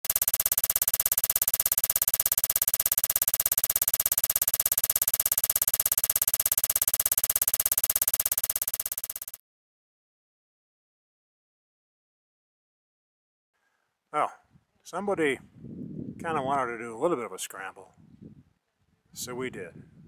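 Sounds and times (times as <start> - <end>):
film projector clattering: 0.0 - 9.4.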